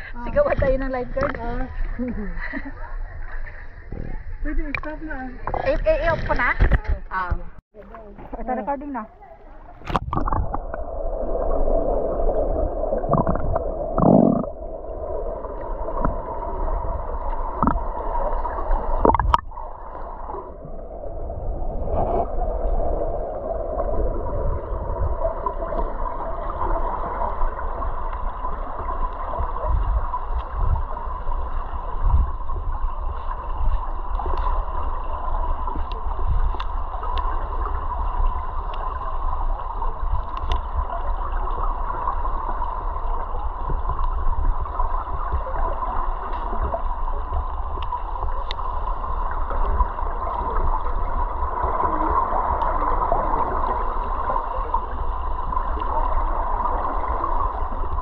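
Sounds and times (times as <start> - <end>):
underwater gurgling and swishing: 0.0 - 58.0
steady hum: 10.0 - 58.0.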